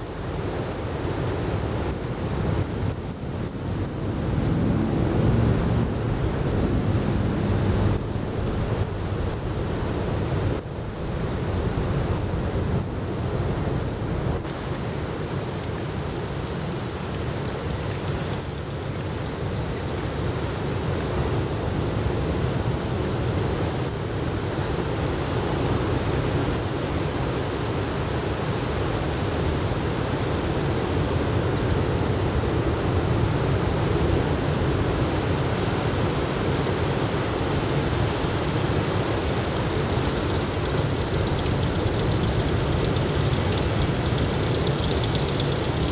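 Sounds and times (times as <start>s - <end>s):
brief high chirp: 23.9s - 24.5s.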